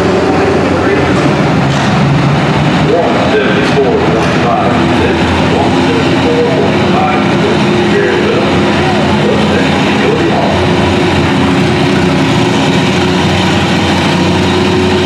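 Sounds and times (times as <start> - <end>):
tractor engine running under load: 0.0 - 15.0.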